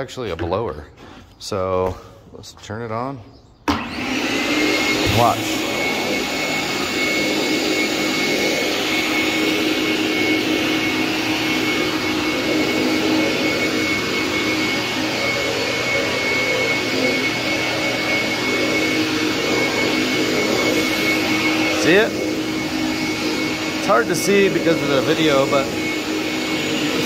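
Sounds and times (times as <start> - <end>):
shop vac motor whine: 3.6 - 27.0.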